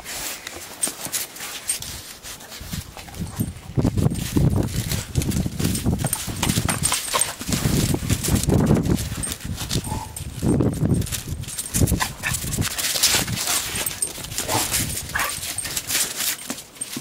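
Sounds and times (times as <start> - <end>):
scuffling in snow: 0.0 - 16.4
dogs growling: 9.0 - 10.5, 11.6 - 16.2.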